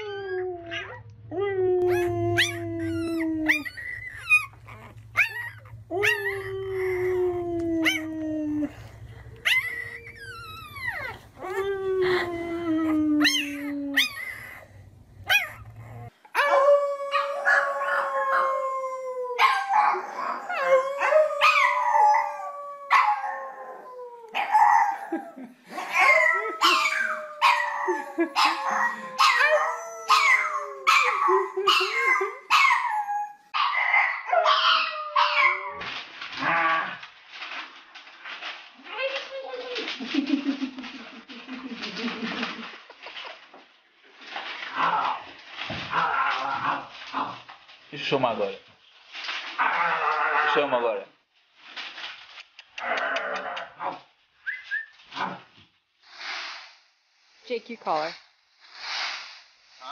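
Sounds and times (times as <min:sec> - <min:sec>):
puppy howling: 0:00.0 - 0:35.9
dog howling high: 0:15.3 - 0:25.1, 0:25.9 - 0:36.6.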